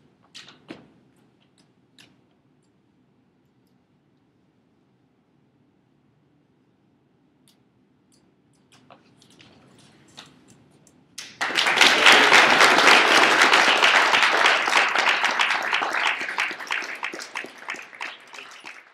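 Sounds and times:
people clapping: 11.2s - 18.9s.

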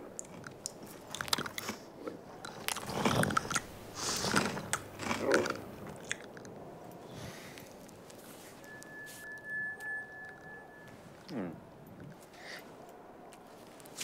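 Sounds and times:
cartoon chewing and crunching: 0.0s - 6.6s.

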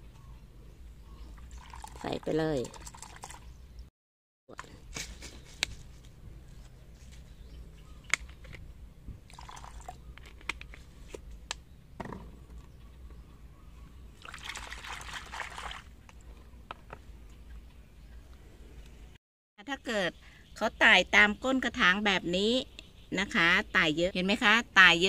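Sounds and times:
water sloshing in plastic basin: 1.3s - 3.5s, 9.3s - 10.4s, 14.2s - 16.2s.

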